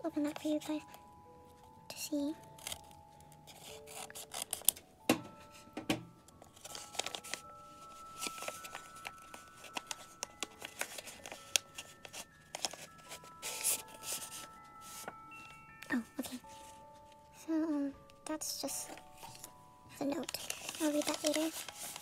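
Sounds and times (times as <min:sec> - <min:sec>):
soft background music: 0:00.0 - 0:22.0
paper rustling and crackling: 0:02.4 - 0:05.6, 0:06.4 - 0:17.2, 0:18.1 - 0:22.0
scissors snipping paper: 0:02.5 - 0:04.8, 0:06.4 - 0:07.4, 0:08.2 - 0:14.5, 0:20.1 - 0:22.0.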